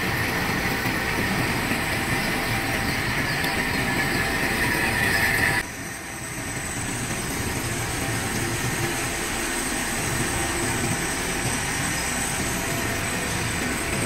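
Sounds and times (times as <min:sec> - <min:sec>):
lathe running: 0:00.0 - 0:14.0.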